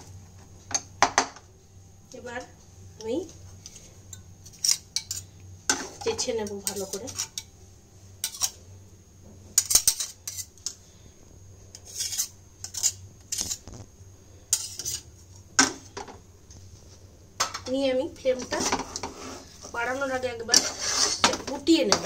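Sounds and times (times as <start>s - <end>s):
metal utensils scraping a frying pan: 3.6s - 7.5s, 8.2s - 8.6s, 9.5s - 10.8s, 11.7s - 13.7s, 14.5s - 15.1s, 18.4s - 22.0s.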